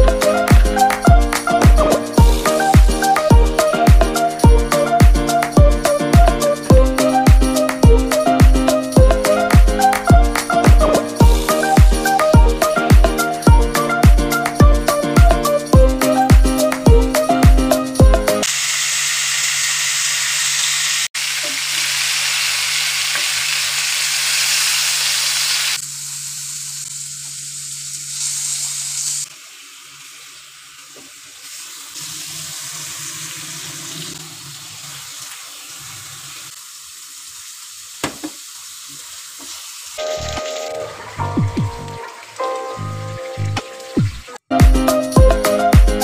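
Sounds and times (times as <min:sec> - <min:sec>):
music: 0:00.0 - 0:18.5, 0:40.0 - 0:46.0
onions sizzling in hot oil: 0:18.4 - 0:41.2.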